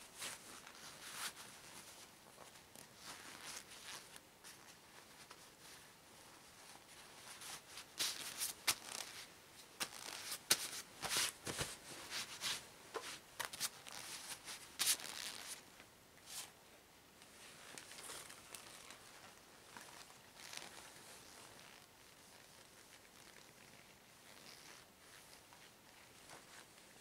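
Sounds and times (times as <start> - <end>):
rubber gloves rustling and snapping: 7.8 - 11.8, 13.4 - 15.6, 17.7 - 23.6.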